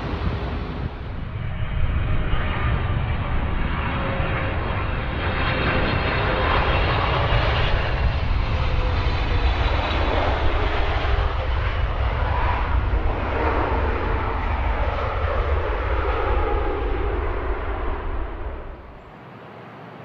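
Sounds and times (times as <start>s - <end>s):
jet engines rumbling: 0.0s - 20.0s.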